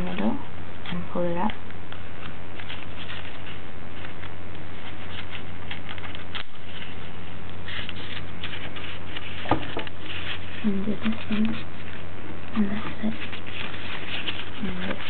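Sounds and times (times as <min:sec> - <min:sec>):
low hum: 0:00.0 - 0:15.0
folded paper rustling: 0:02.6 - 0:12.0, 0:12.6 - 0:15.0.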